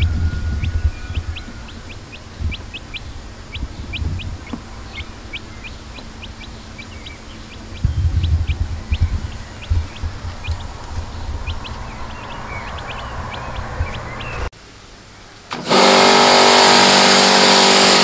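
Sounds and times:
low rumble: 0.0s - 14.5s
small birds chirping: 0.0s - 15.4s.

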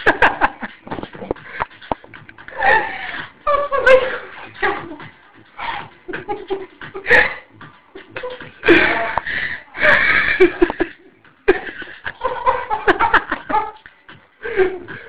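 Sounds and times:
people laughing: 0.0s - 15.0s.

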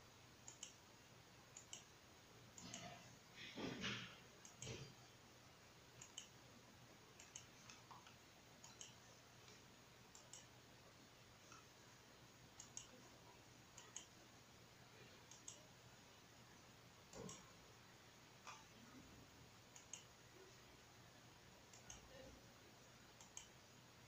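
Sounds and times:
computer mouse clicks: 0.4s - 0.8s, 1.6s - 1.9s, 2.5s - 3.0s, 3.8s - 5.0s, 6.0s - 6.4s, 7.2s - 10.5s, 11.4s - 11.7s, 12.6s - 13.1s, 13.7s - 14.2s, 15.2s - 15.7s, 17.1s - 17.5s, 18.4s - 18.8s, 19.7s - 20.2s, 21.7s - 22.2s, 23.2s - 23.6s.

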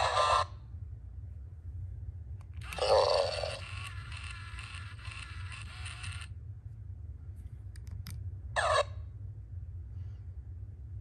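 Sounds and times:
raspy electronic toy sound: 0.0s - 0.5s, 2.6s - 6.3s
toy motor whir: 2.6s - 6.3s.

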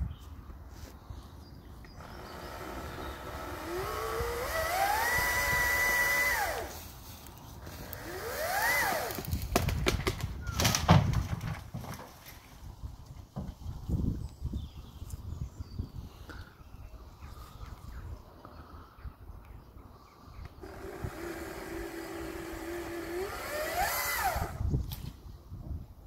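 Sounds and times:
chainsaw revving: 2.0s - 6.8s, 7.7s - 9.3s, 20.6s - 24.6s
sharp cracks and knocks: 8.6s - 12.4s.

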